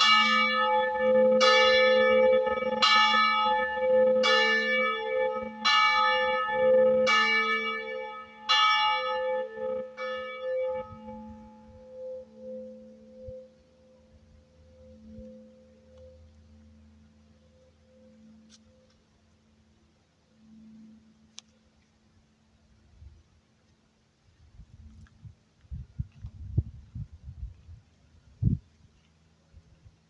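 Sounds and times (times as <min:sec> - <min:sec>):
church bell ringing: 0:00.0 - 0:18.4
low steady hum: 0:10.7 - 0:30.0.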